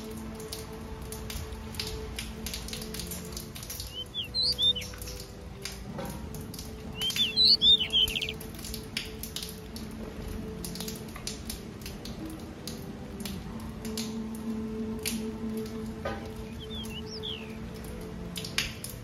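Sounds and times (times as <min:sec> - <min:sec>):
small finches chirping: 0:03.6 - 0:05.2, 0:06.9 - 0:08.4, 0:16.3 - 0:17.7.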